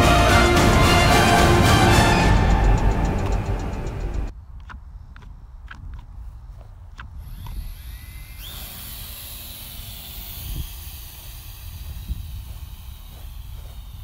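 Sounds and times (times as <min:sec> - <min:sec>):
rising whine: 0:00.0 - 0:04.3, 0:07.2 - 0:14.0
drone motors and propellers: 0:00.0 - 0:14.0
low wind rumble: 0:00.0 - 0:14.0.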